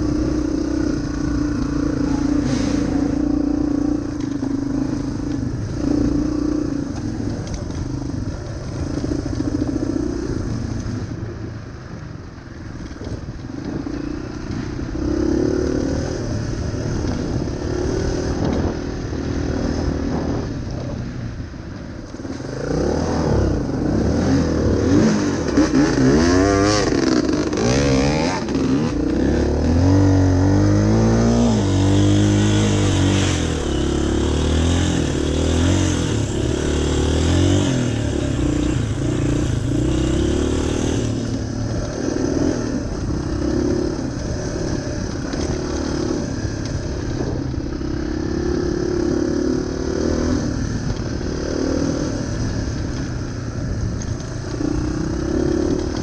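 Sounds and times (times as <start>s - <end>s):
dirt bike engine revving: 22.4s - 46.5s.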